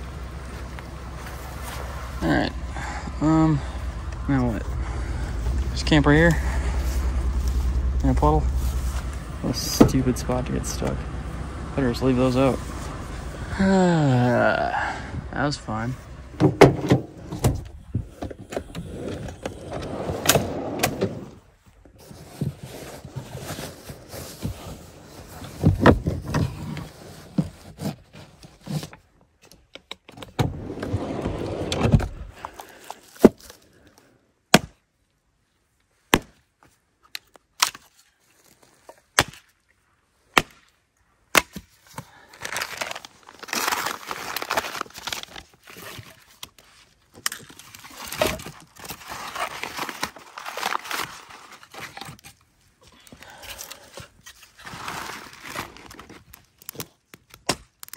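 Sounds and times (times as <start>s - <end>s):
paper crinkling: 42.2s - 52.5s, 53.6s - 57.9s.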